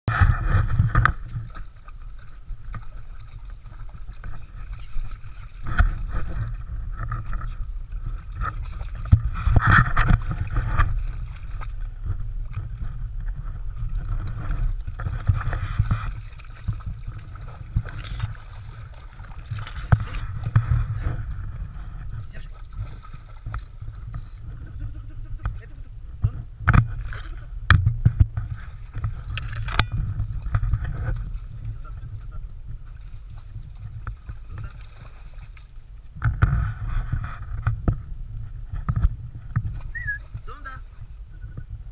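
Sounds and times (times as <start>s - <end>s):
stream running: 0.1s - 41.9s
dog splashing through water: 0.2s - 12.9s, 22.4s - 24.2s, 32.9s - 35.7s.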